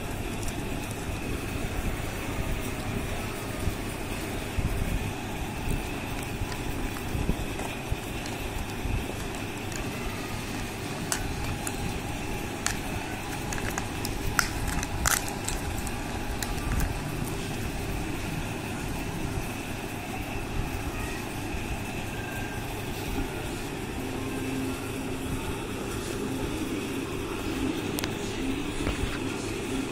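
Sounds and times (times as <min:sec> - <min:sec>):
foil wrapper crinkling: 0:00.0 - 0:01.6, 0:05.0 - 0:17.8
low background rumble: 0:00.0 - 0:29.9
plastic toy pieces clicking: 0:10.9 - 0:17.1.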